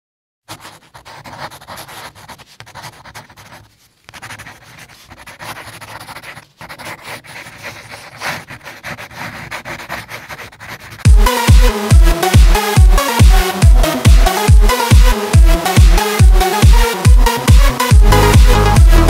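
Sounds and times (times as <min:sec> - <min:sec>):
pencil scratching on paper: 0:00.5 - 0:11.6.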